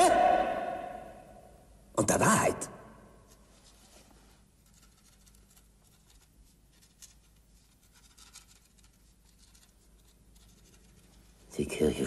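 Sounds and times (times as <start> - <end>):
quill pen scratching paper: 4.6 - 11.1.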